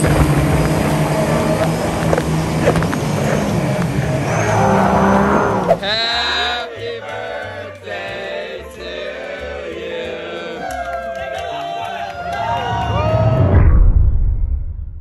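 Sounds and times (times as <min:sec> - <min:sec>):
jet boat engine at speed: 0:00.0 - 0:05.8
music with gliding notes: 0:00.0 - 0:11.5.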